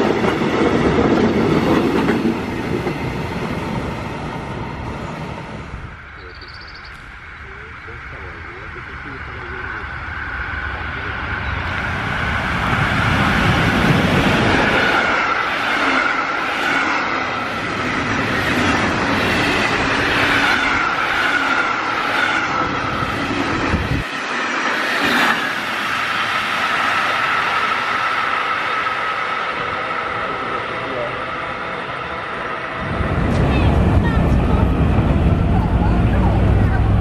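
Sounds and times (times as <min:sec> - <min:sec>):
train wheels clickety-clack: 0:00.0 - 0:03.5
low train rumble: 0:00.0 - 0:37.0.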